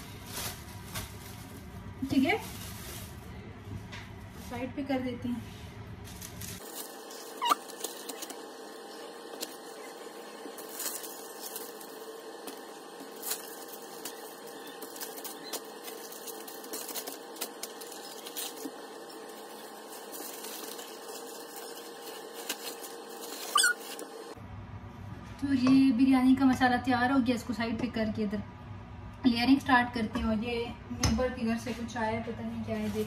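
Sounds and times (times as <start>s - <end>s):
paper and plastic bag crinkling: 0.0s - 5.1s, 6.0s - 24.4s, 32.6s - 33.0s.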